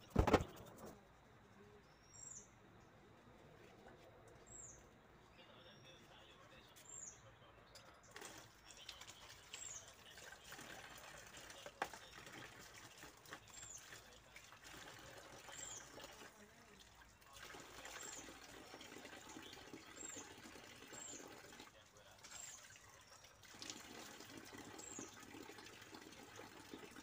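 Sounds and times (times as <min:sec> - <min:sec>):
water running and splashing: 0:08.1 - 0:27.0.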